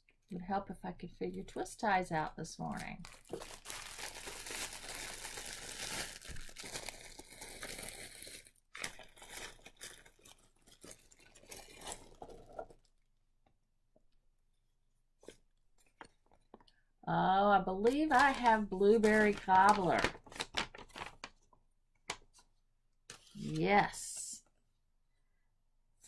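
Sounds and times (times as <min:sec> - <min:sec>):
plastic bag crinkling: 0:02.7 - 0:12.9, 0:17.8 - 0:21.5.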